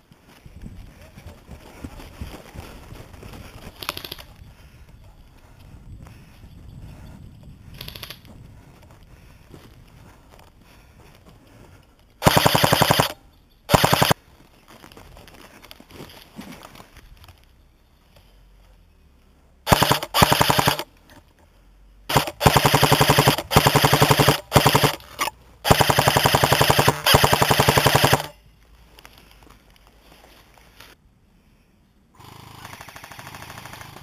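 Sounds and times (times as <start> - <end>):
airsoft gun automatic bursts: 12.2 - 14.2, 19.7 - 20.9, 22.1 - 28.4, 32.2 - 34.0.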